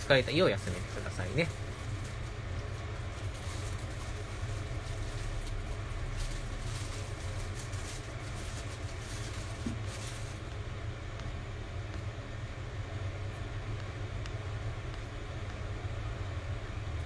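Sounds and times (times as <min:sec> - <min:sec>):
plastic bag rustling: 0:00.0 - 0:10.5.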